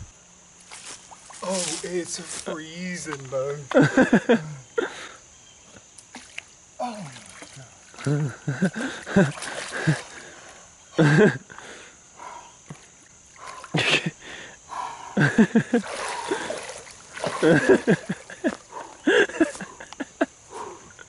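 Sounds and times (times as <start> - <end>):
water splashing and sloshing: 6.0 - 10.7, 12.6 - 14.1, 15.2 - 19.6
man groaning and gasping: 6.8 - 7.3.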